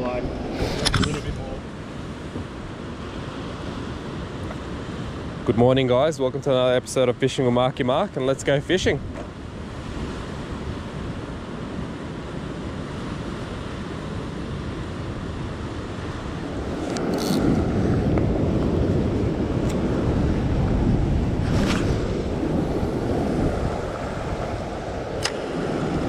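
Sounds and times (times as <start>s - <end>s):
surf washing over rocks: 0.0s - 26.0s
wind buffeting microphone: 8.8s - 26.0s.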